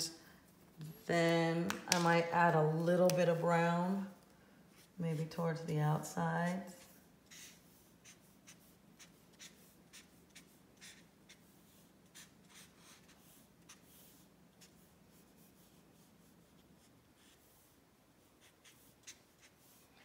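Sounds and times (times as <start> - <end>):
marker scratching on paper: 7.3 - 19.8.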